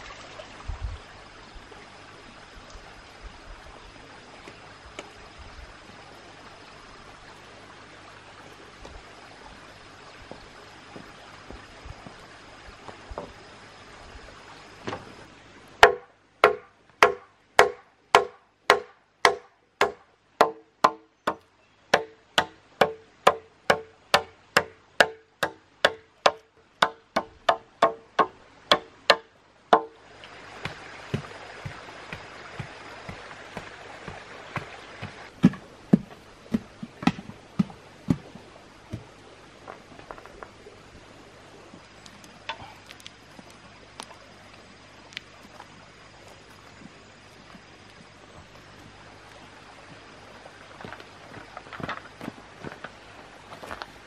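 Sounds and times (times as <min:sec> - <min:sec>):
outdoor ambience hiss: 0:00.0 - 0:54.0
knife chopping into wood: 0:30.6 - 0:38.3.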